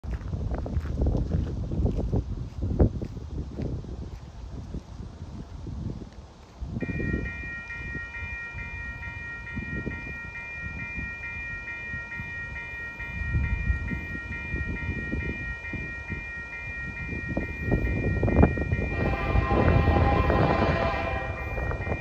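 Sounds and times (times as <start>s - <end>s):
railroad crossing bell clanging: 6.8s - 22.0s.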